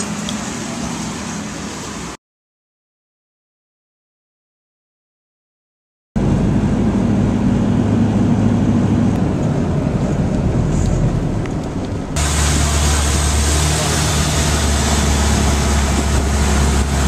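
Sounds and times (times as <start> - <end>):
road and wind rush: 0.0 - 2.2, 6.2 - 17.0
vehicle engine drone: 0.0 - 2.2, 6.2 - 17.0.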